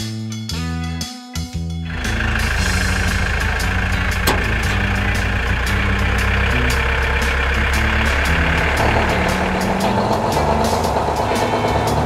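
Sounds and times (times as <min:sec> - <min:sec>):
tractor engine running: 0:01.9 - 0:12.0
sharp click: 0:04.1 - 0:05.3.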